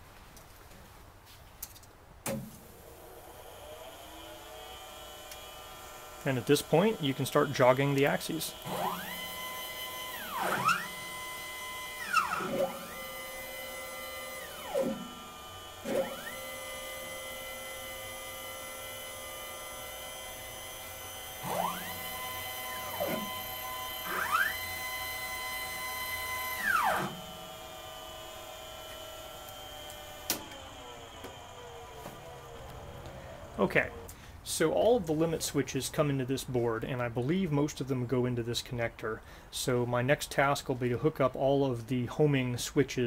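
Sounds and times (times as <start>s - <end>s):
stepper motor whine: 2.7s - 34.1s.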